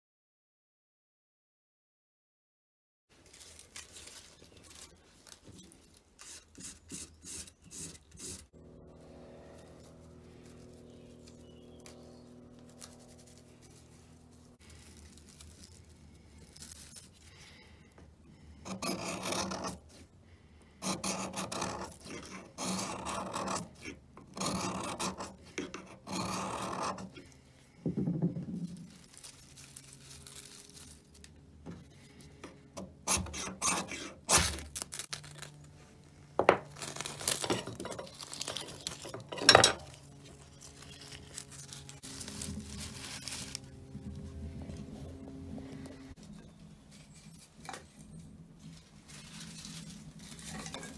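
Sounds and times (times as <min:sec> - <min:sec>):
knife scraping ferrocerium rod: 0:06.2 - 0:08.5, 0:18.6 - 0:20.1, 0:20.8 - 0:27.4, 0:32.8 - 0:34.7.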